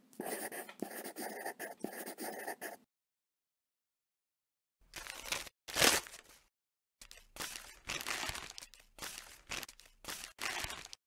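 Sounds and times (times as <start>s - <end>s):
paper crumpling and tearing: 4.9s - 6.4s, 7.0s - 11.0s.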